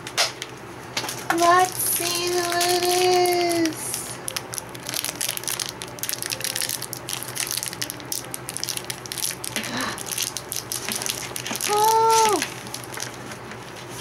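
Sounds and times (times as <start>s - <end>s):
plastic wrapper crinkling and tearing: 1.4s - 13.5s
voice holding a note: 11.6s - 12.5s.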